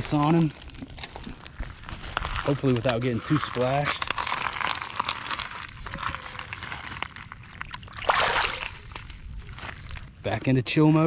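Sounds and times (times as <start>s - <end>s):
fish splashing: 4.2s - 9.2s
water sloshing: 7.4s - 9.4s.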